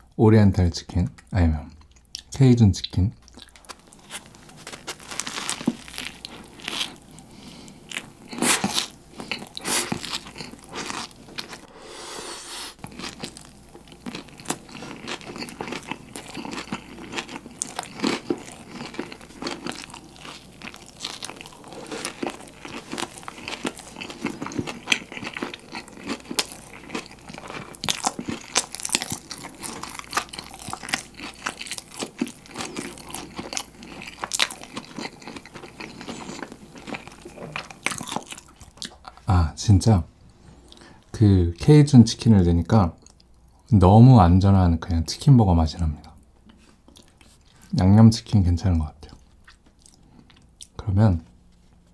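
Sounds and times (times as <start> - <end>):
biting and chewing crunchy food: 3.2 - 11.7, 12.8 - 39.3, 46.5 - 47.8, 49.1 - 50.8.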